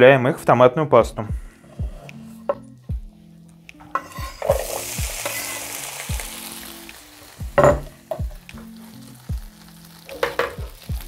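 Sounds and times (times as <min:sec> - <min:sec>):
background music with beat: 0:01.0 - 0:11.0
tomatoes sizzling in hot oil: 0:03.9 - 0:11.0.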